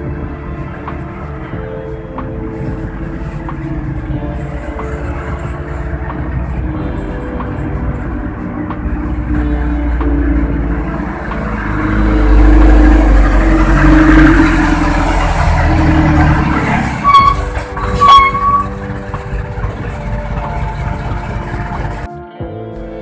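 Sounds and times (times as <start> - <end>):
vehicle engine low rumble: 0.0 - 22.1
short high-pitched squeals: 17.0 - 18.8.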